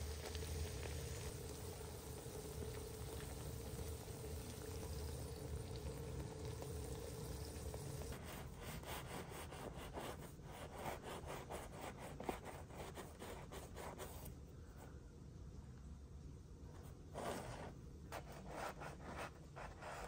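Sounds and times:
patties sizzling on a griddle: 0.0s - 8.8s.

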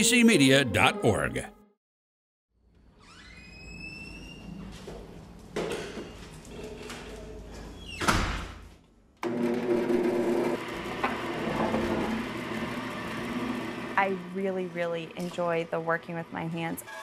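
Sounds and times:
door opening and banging shut: 8.0s - 8.6s
bandsaw motor humming: 9.2s - 14.6s.

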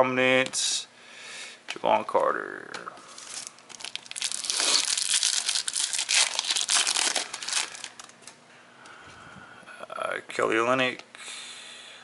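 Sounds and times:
foil wrapper tearing and crinkling: 3.1s - 8.2s.

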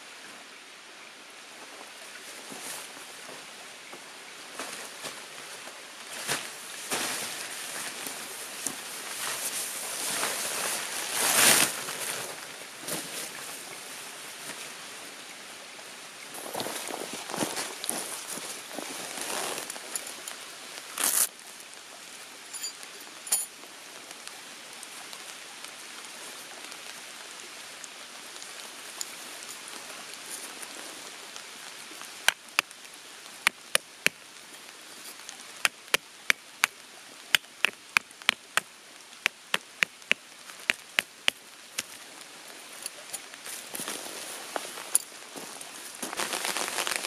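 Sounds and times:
steady background hiss: 0.0s - 47.0s
tarp rustling: 4.5s - 13.7s, 16.3s - 21.3s, 31.9s - 47.0s
raindrops ticking on tarp: 16.3s - 47.0s.

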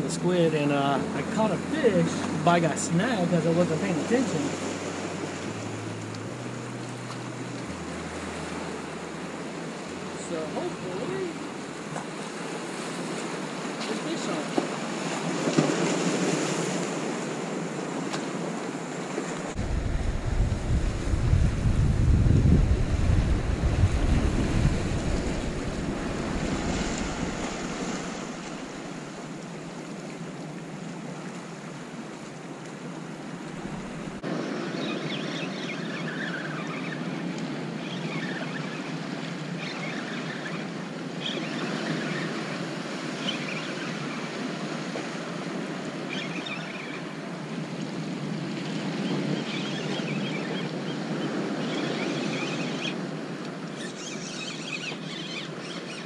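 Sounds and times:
ocean surf washing over rocks: 0.0s - 53.7s
wind buffeting microphone: 19.4s - 29.4s.

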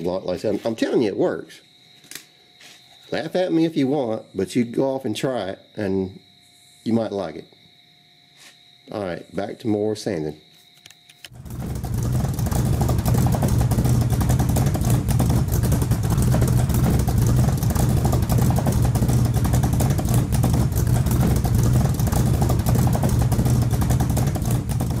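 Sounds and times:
vehicle engine idling: 11.3s - 25.0s.

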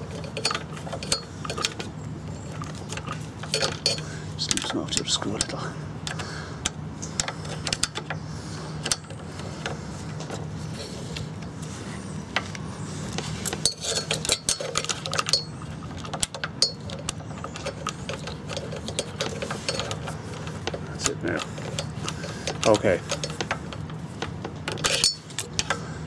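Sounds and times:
steady low hum: 0.0s - 26.0s
small metallic clicks and taps: 12.4s - 25.8s.

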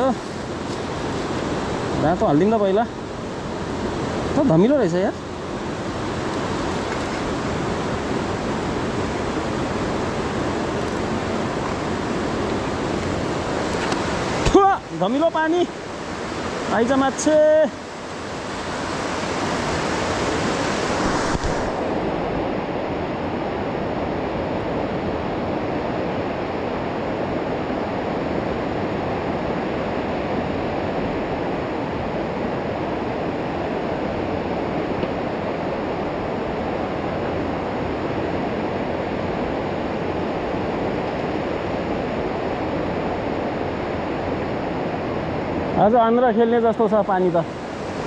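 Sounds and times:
river water rushing through gorge: 0.0s - 48.0s.

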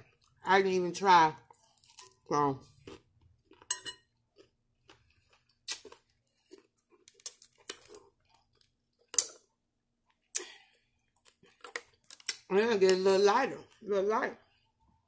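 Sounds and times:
chewing raw salad greens: 4.3s - 10.4s, 11.0s - 12.5s
wet mouth sounds: 5.6s - 6.0s.

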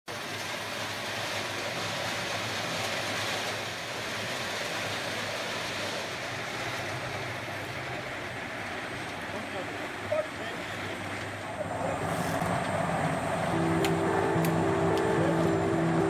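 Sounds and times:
rushing water wash: 0.1s - 16.0s
low motor hum: 11.2s - 16.0s.

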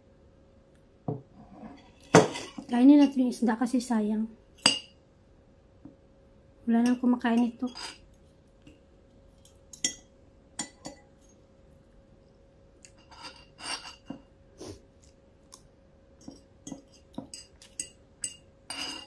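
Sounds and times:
cutlery clinking on ceramic plate: 16.2s - 19.0s.

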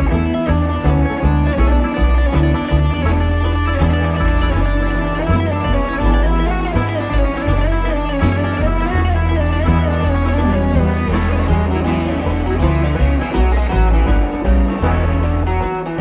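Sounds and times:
bluegrass band playing: 0.0s - 16.0s
wavering lead line: 0.0s - 16.0s.

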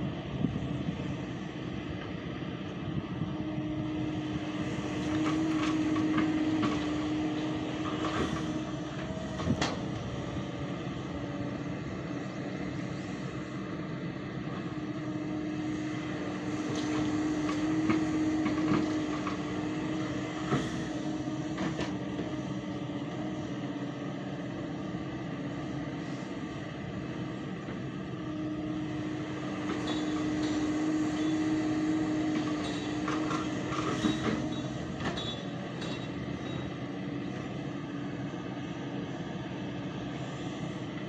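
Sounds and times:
excavator diesel engine working: 0.0s - 41.0s
metallic clanks from excavator bucket: 32.4s - 36.7s.

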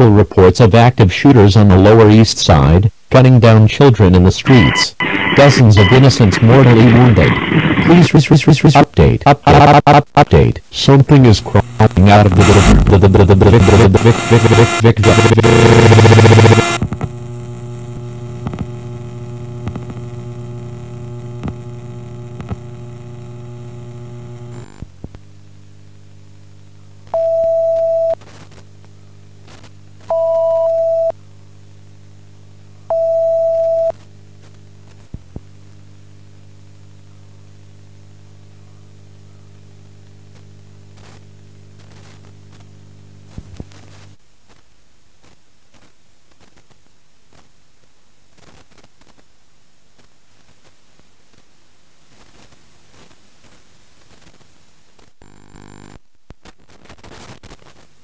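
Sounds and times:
electrical hum: 0.0s - 58.0s
loud electronic beeps: 4.6s - 6.2s.

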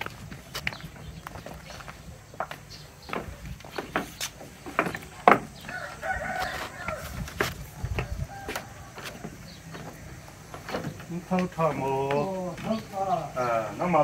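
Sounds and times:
footsteps on wooden stairs: 0.0s - 13.5s
rooster crowing: 5.6s - 9.7s.

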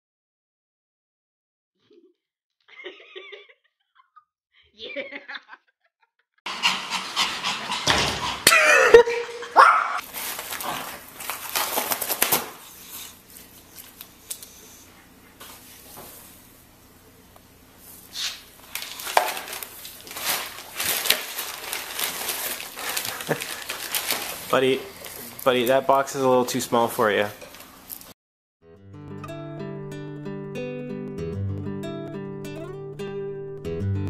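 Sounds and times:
dog panting and snuffling: 6.5s - 8.5s.

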